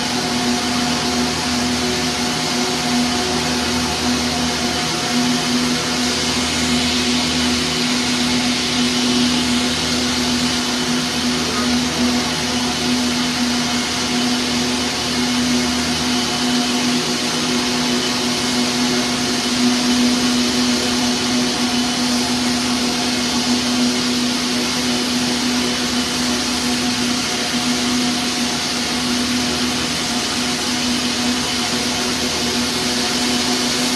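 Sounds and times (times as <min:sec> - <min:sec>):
even hum: 0:00.0 - 0:33.9.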